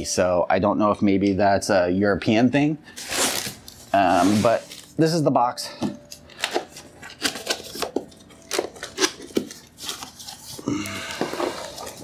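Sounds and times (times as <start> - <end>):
packing tape cut and pulled: 3.0 - 5.0, 6.1 - 12.0.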